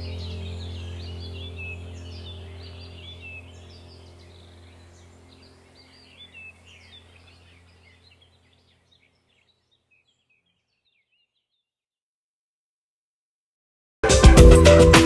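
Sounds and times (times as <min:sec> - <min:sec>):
steady low hum: 0:00.0 - 0:09.5
birds chirping: 0:00.0 - 0:11.7.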